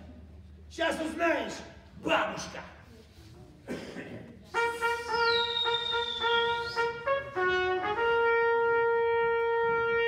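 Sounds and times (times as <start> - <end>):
trumpet playing a fanfare: 4.5 - 10.0.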